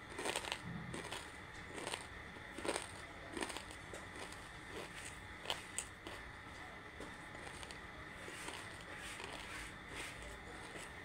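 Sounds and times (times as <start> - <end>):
crunchy chewing: 0.0 - 11.0.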